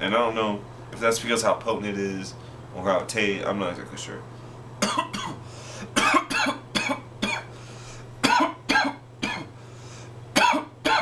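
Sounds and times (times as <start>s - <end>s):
man coughing: 4.8s - 7.5s, 8.2s - 9.6s, 10.4s - 11.0s.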